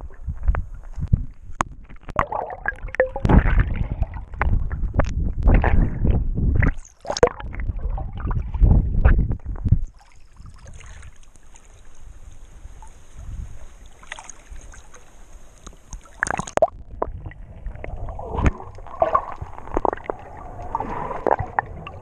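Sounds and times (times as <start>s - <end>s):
knocks and gurgles: 0.0s - 10.6s, 16.0s - 22.0s
water splashing over camera: 0.0s - 22.0s.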